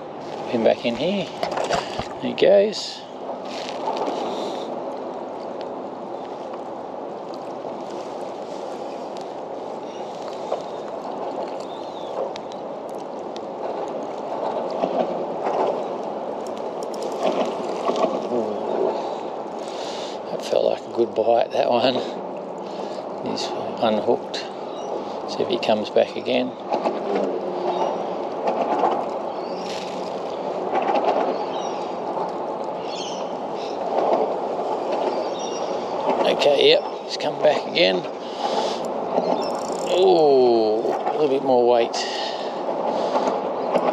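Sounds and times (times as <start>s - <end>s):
water lapping against kayak hull: 0.0s - 2.3s, 3.0s - 43.9s
road traffic rumble on bridge: 0.0s - 43.9s
faint clicks: 10.0s - 18.3s, 38.4s - 40.0s.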